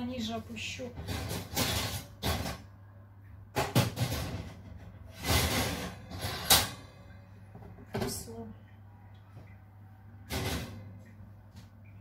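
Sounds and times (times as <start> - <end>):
metal oven rack scraping and clanking: 0.6 - 2.7, 3.7 - 7.0, 10.3 - 10.9.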